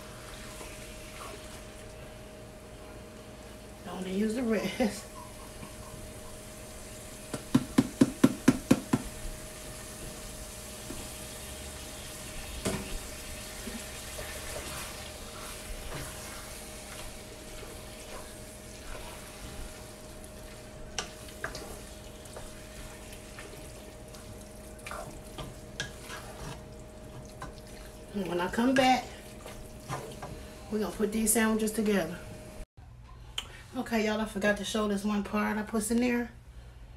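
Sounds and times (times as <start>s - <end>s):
meat sizzling: 5.5s - 27.3s
wooden spoon scraping a pot: 24.9s - 26.7s.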